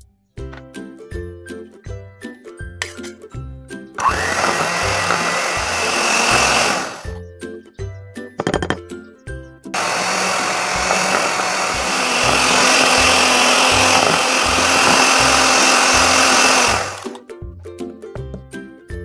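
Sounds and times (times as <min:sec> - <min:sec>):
electric hand mixer running: 0:04.0 - 0:07.1, 0:09.8 - 0:17.2
background music with steady beat: 0:12.7 - 0:19.0.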